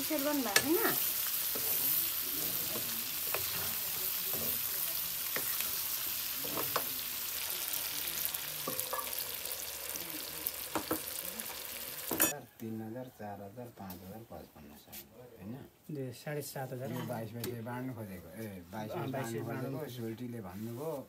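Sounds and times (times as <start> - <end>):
meat sizzling in a pan: 0.0 - 12.4
ladle scraping a pan: 0.4 - 4.7.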